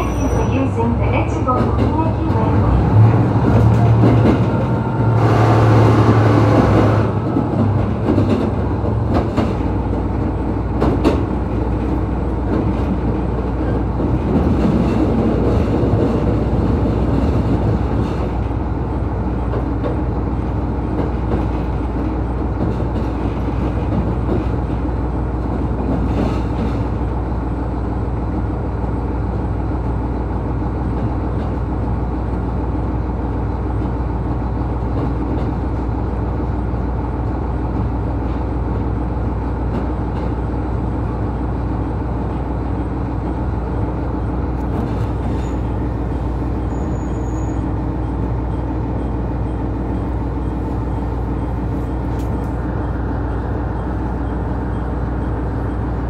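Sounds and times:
diesel engine droning: 0:00.0 - 0:10.9.

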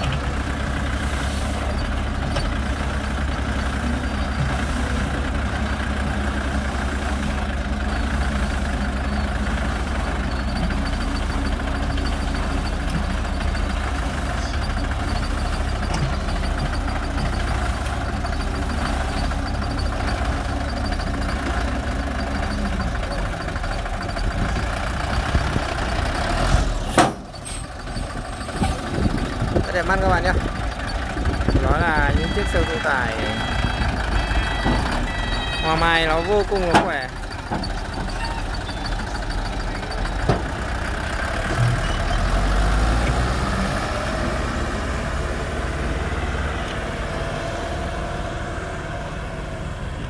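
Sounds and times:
diesel engine droning: 0:00.0 - 0:50.0.

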